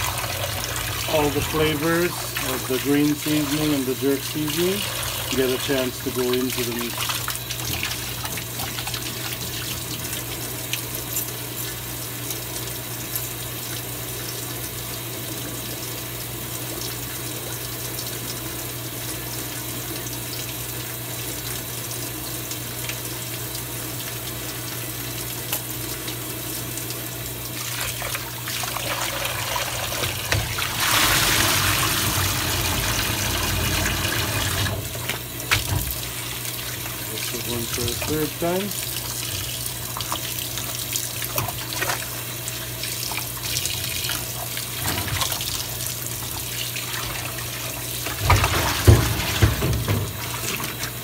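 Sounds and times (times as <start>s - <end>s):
meat rinsed in tub of water: 0.0s - 51.0s
tap running into metal sink: 29.9s - 36.0s, 48.1s - 50.9s.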